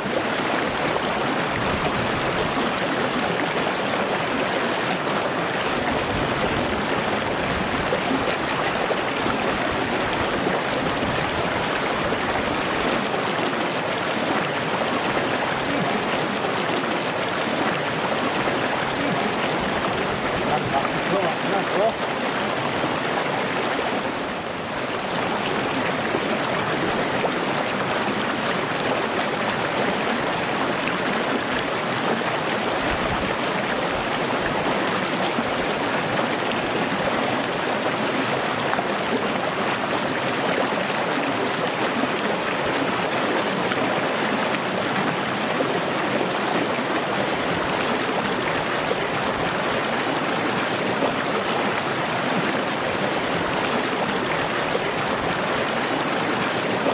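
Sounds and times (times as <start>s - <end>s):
river flowing over stones: 0.0s - 56.9s.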